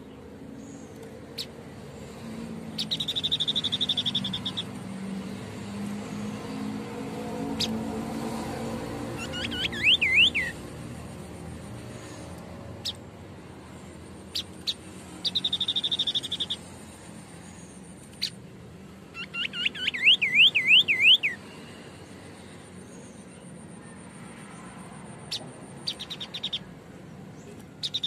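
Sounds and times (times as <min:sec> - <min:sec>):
sharp bird ticks: 0:00.1 - 0:01.7, 0:02.7 - 0:04.9, 0:07.5 - 0:08.0, 0:09.0 - 0:13.0, 0:13.9 - 0:16.7, 0:17.4 - 0:18.4, 0:24.4 - 0:26.7, 0:27.4 - 0:28.0
bird whistling song: 0:02.8 - 0:04.8, 0:09.2 - 0:10.6, 0:14.3 - 0:16.7, 0:17.5 - 0:18.4, 0:19.1 - 0:21.5, 0:25.2 - 0:26.7, 0:27.4 - 0:28.0
fast rattling bird trill: 0:02.8 - 0:04.8, 0:09.1 - 0:10.6, 0:14.2 - 0:18.4, 0:25.3 - 0:26.7, 0:27.7 - 0:28.0.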